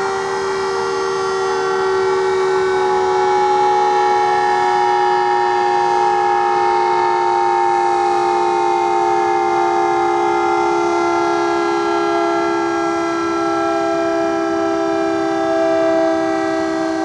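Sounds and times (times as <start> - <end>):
two-note warning siren: 0.0 - 17.0.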